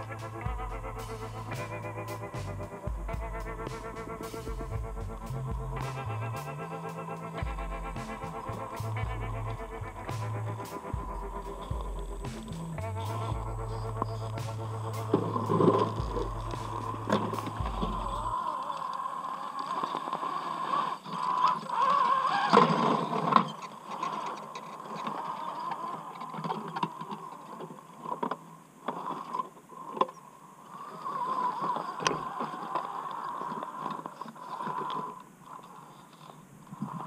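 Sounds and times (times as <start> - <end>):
electric motor whining: 0.0 - 23.4.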